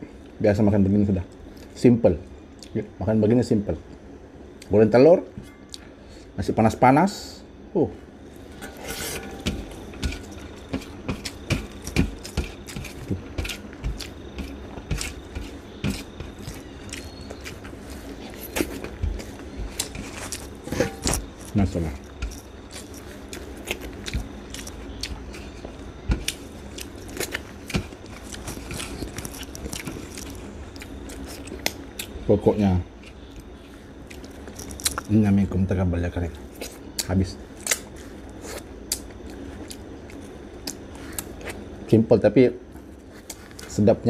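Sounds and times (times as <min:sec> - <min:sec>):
chewing and mouth smacking: 0:10.2 - 0:32.2, 0:33.0 - 0:35.1, 0:36.6 - 0:41.6.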